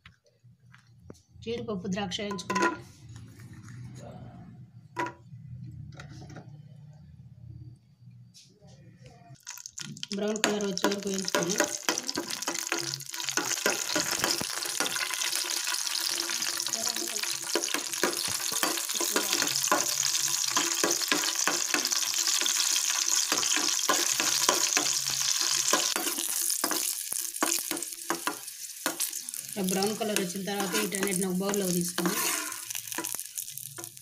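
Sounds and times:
nuts sizzling in hot oil: 9.4 - 34.0
steel spoon scraping a pan: 11.0 - 16.8, 17.4 - 34.0.

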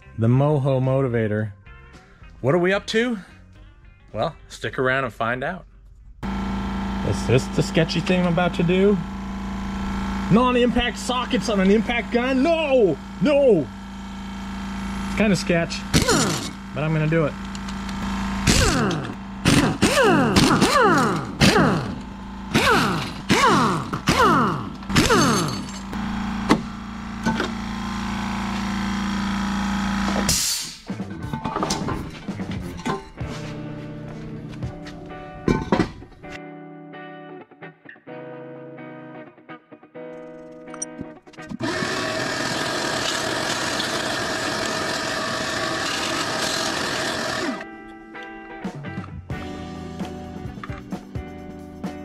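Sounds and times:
steady machine hum: 6.2 - 30.4
shop vacuum running: 6.2 - 30.8, 41.5 - 47.7.

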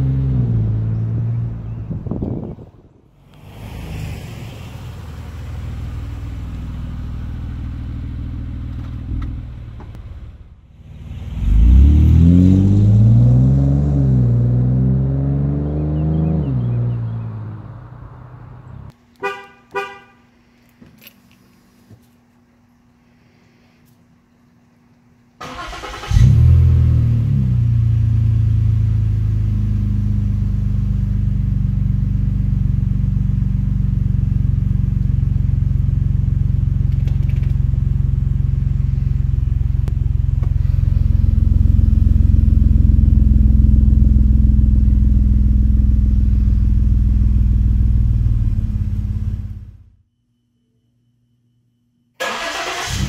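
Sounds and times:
car engine revving and idling: 3.2 - 18.9, 25.5 - 49.9
car starter cranking: 25.4 - 26.4, 52.2 - 53.0.

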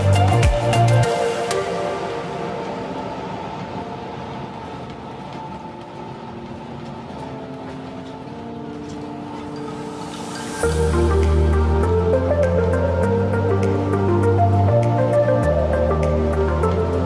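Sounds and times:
beat with deep bass: 0.0 - 1.1
soft music with sustained chords: 0.0 - 17.0
bus interior rumble: 0.2 - 17.0.

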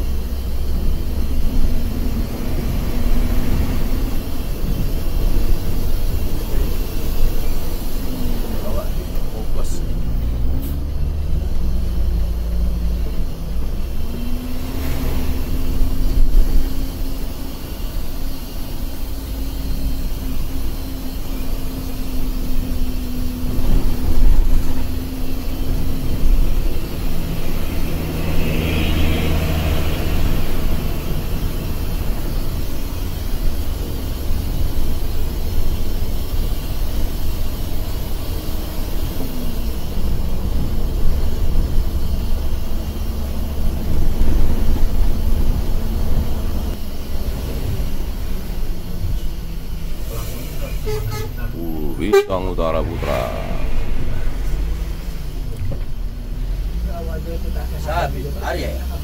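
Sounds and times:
bus diesel engine droning: 0.0 - 59.0
road noise: 0.0 - 59.0.

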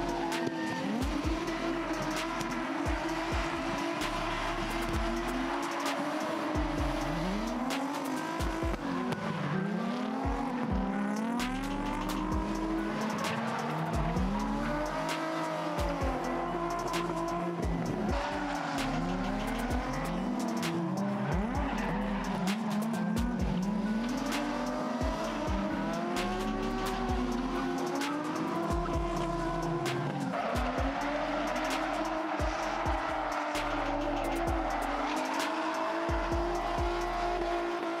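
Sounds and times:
background music with bass line: 0.0 - 9.2, 10.0 - 38.0
car engines revving hard: 0.0 - 38.0
tyres squealing: 26.4 - 37.4.

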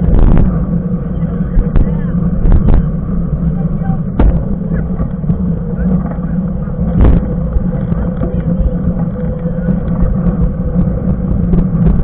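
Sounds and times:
knobby tyres rolling on asphalt: 0.0 - 12.0
wind on microphone: 0.0 - 12.0.

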